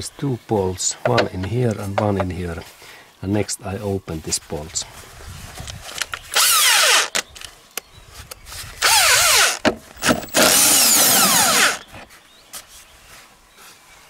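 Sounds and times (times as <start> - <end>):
impact driver spinning bolts: 6.3 - 7.3, 8.8 - 11.9.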